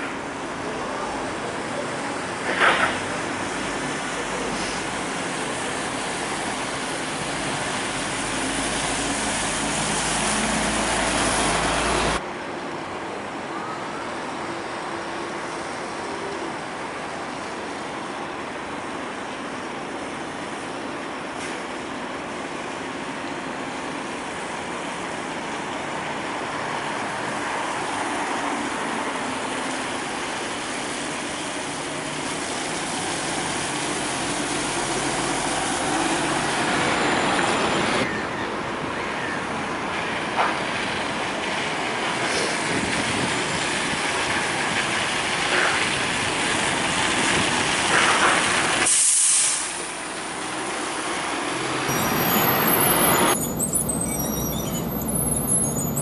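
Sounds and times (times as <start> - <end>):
bus engines running: 0.0 - 56.0
tyres hissing on wet road: 0.2 - 38.1, 39.7 - 56.0
sharp air hisses: 48.8 - 49.9.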